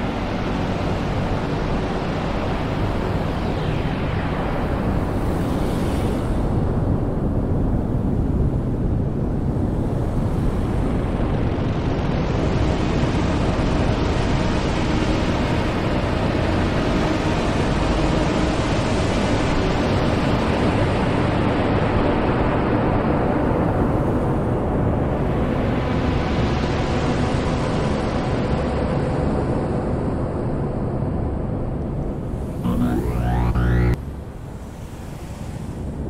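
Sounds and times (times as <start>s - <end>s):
dense wall of low noise: 32.6s - 34.0s.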